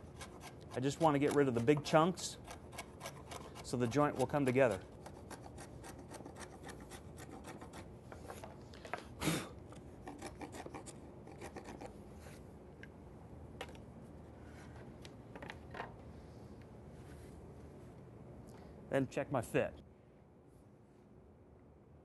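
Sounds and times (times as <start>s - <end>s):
wood chisel scraping: 0.0s - 8.6s, 10.0s - 12.0s.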